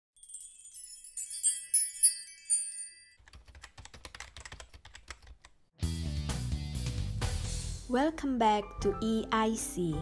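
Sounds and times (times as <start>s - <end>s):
glittering chime sparkle: 0.2s - 3.2s.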